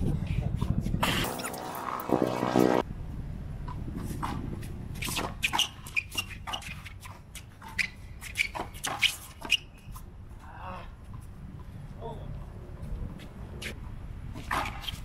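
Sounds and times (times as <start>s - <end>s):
sneakers squeaking on concrete: 4.0s - 10.2s, 12.4s - 15.0s.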